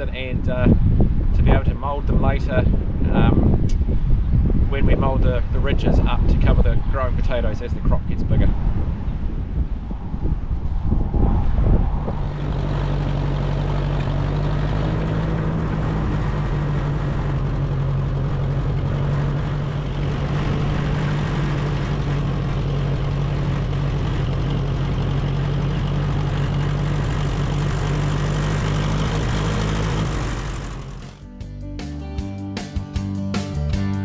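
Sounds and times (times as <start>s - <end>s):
tractor engine running: 12.1s - 31.5s.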